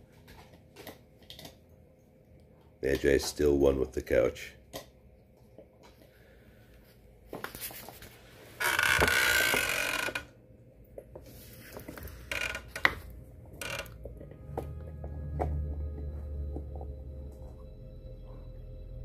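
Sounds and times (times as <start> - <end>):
puppy chewing plastic bottle: 0.2 - 1.7.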